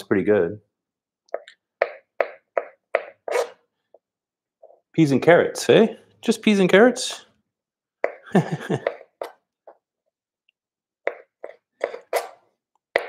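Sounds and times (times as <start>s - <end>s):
knife cutting tomatoes: 11.1s - 13.0s.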